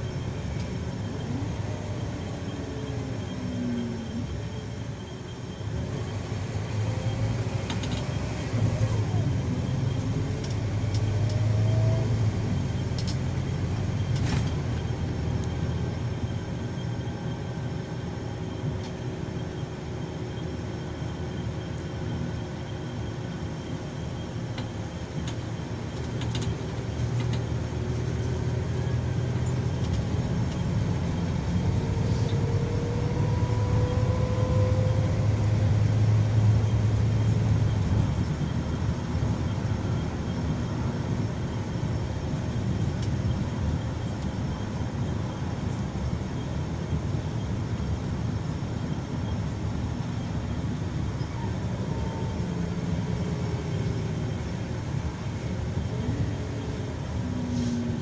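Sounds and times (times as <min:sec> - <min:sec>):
faint rising whine: 0:00.0 - 0:25.7, 0:27.7 - 0:42.8
bus engine low rumble: 0:00.0 - 0:58.0
road noise: 0:00.0 - 0:58.0.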